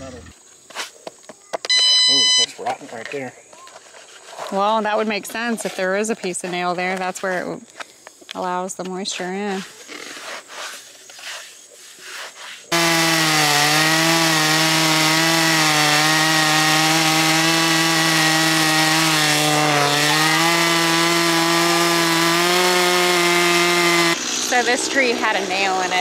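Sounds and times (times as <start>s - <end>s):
band sawmill running: 12.7s - 26.0s.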